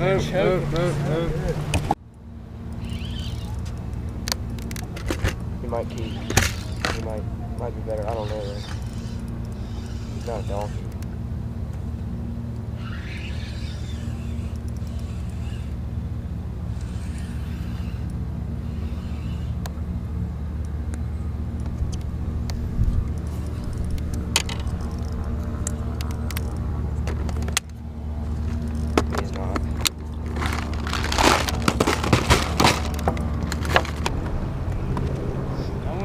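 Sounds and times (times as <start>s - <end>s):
motor humming: 0.0s - 35.2s
sharp clicks and rattles: 2.8s - 7.2s, 21.6s - 27.8s, 28.4s - 34.4s.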